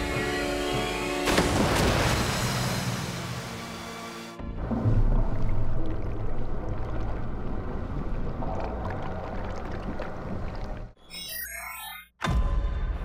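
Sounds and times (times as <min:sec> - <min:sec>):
muffled underwater rumble: 0:04.6 - 0:10.9.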